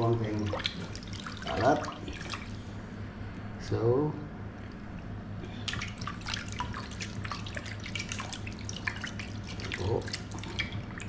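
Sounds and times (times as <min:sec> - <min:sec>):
low steady hum: 0:00.0 - 0:11.0
fish swished in water splashing: 0:00.3 - 0:02.8, 0:05.5 - 0:11.0.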